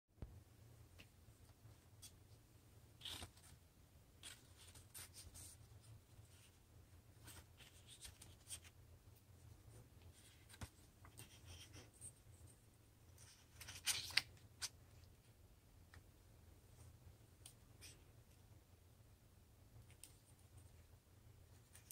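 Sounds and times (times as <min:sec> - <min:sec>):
paper rustling: 0:13.2 - 0:14.7.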